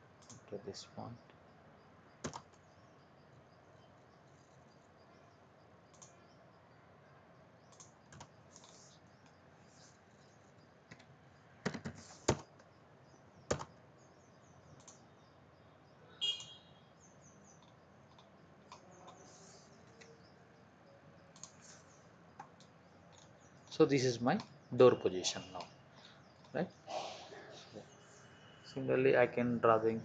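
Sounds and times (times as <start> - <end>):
keyboard keystrokes: 2.2 - 2.6, 13.5 - 13.8
mouse clicks: 5.9 - 6.2, 7.7 - 9.4, 14.7 - 15.0.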